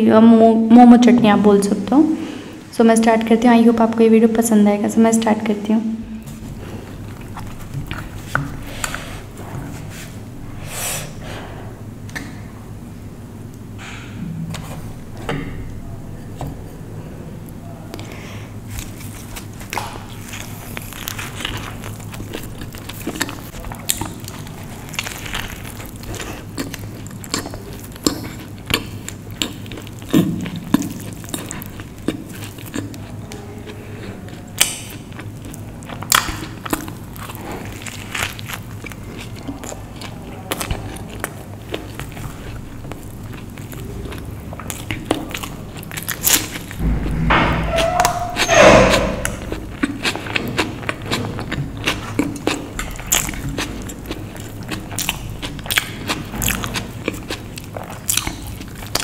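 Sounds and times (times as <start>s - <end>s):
biting and chewing: 6.3s - 10.1s, 17.5s - 47.0s, 47.6s - 59.0s
wet mouth clicks: 34.3s - 35.4s.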